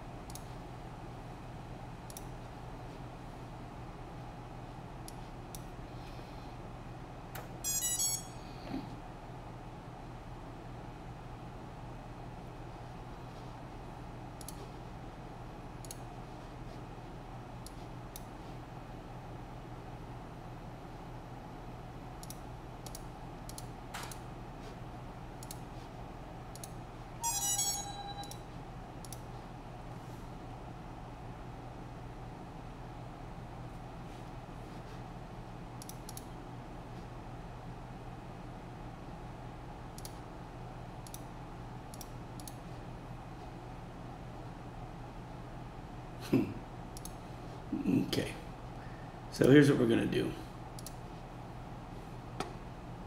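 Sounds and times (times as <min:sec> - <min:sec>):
steady low hum: 0:00.0 - 0:53.0
computer mouse clicking: 0:00.3 - 0:00.6, 0:02.1 - 0:02.4, 0:14.4 - 0:14.7, 0:15.8 - 0:16.1, 0:17.6 - 0:18.3, 0:22.2 - 0:24.8, 0:25.4 - 0:25.8, 0:26.5 - 0:26.8, 0:28.2 - 0:28.4, 0:29.0 - 0:29.3, 0:35.8 - 0:36.3, 0:40.0 - 0:40.2, 0:41.0 - 0:41.3, 0:41.9 - 0:42.6, 0:47.0 - 0:47.2, 0:50.8 - 0:51.0
mouse clicks: 0:02.1 - 0:02.3, 0:14.4 - 0:14.6, 0:25.4 - 0:25.7, 0:26.5 - 0:26.8, 0:29.0 - 0:29.2, 0:35.8 - 0:36.3, 0:50.8 - 0:51.0
electronic beeps: 0:07.6 - 0:08.4, 0:27.2 - 0:28.4.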